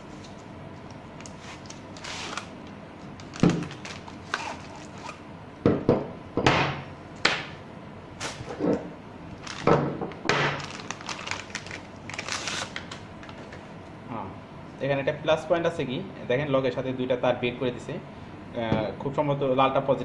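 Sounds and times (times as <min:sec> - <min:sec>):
plastic bag crinkling: 0:00.1 - 0:05.2, 0:09.3 - 0:13.7.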